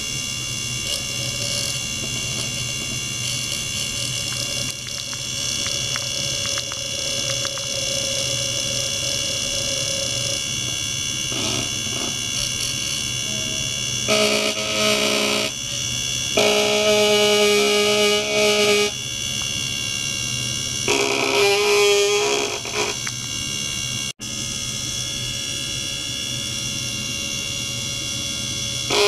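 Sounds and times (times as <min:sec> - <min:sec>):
electric toothbrush buzzing: 0:00.0 - 0:29.0
electronic hum and high whine: 0:00.0 - 0:29.0.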